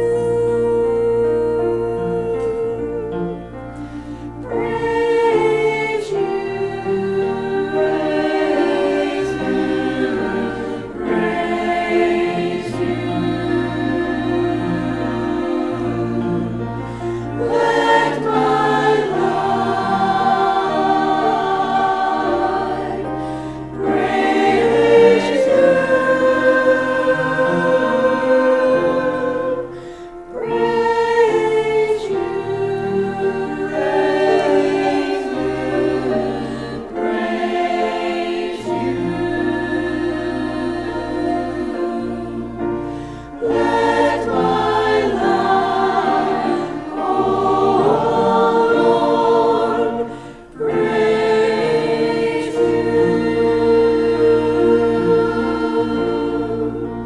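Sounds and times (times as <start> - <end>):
church choir singing: 0.0 - 57.0.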